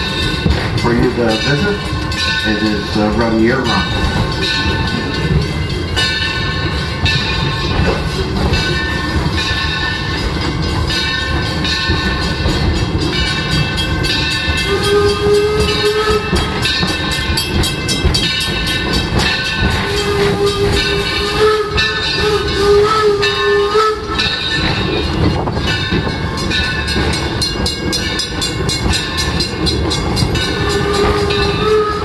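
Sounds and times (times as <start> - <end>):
train wheels rumbling on rails: 0.0 - 32.0
steam whistle blowing: 14.6 - 16.7, 19.8 - 24.4, 30.5 - 32.0.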